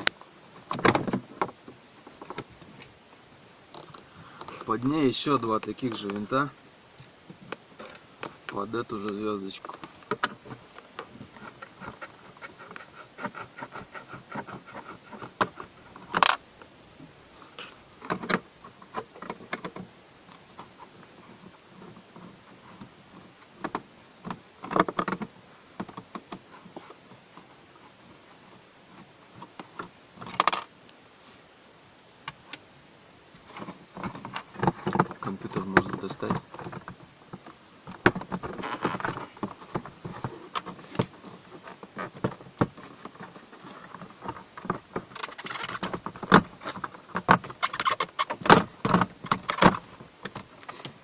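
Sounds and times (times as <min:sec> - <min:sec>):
knocks of plastic and metal: 0:33.5 - 0:50.5.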